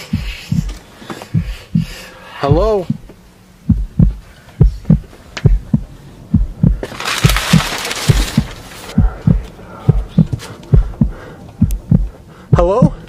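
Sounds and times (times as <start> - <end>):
heartbeat double thump: 0.0 - 13.0.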